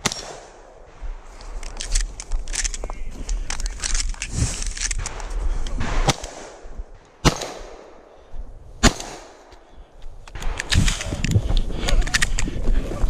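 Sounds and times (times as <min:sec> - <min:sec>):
shotgun shots: 0:00.0 - 0:01.0, 0:05.0 - 0:08.1, 0:08.8 - 0:09.5
footsteps on dry leaves: 0:01.2 - 0:05.6.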